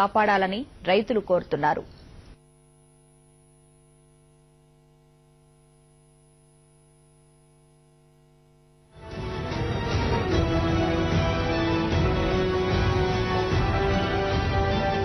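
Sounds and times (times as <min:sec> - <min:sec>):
faint electrical hum: 0:00.0 - 0:08.9.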